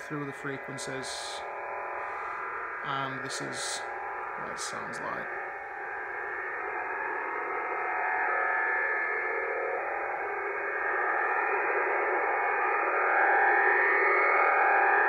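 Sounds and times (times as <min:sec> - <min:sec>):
faint held tones: 0:00.0 - 0:15.0
noise-like radar signal on radio: 0:00.0 - 0:15.0.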